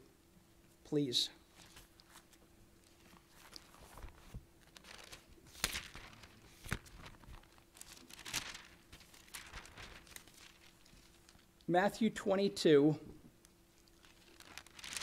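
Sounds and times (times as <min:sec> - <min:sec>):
faint steady hum: 0:00.0 - 0:15.0
thin pages rustling: 0:01.4 - 0:11.6, 0:13.4 - 0:15.0.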